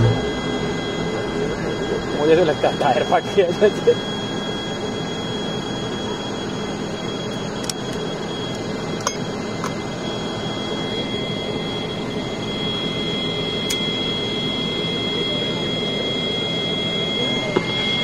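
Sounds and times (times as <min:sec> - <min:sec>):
turboprop engine whine: 0:00.0 - 0:18.0.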